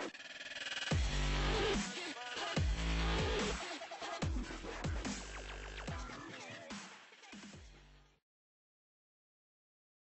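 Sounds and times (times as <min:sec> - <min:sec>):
electronic music with heavy bass: 0:00.0 - 0:08.2
deep kick drum beat: 0:00.9 - 0:01.8, 0:02.6 - 0:03.6, 0:04.2 - 0:06.1.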